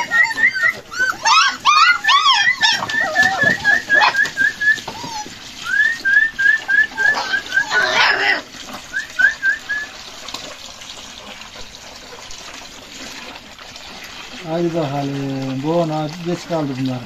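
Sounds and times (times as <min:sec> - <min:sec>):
puppies whimpering and yipping: 0:00.0 - 0:09.9.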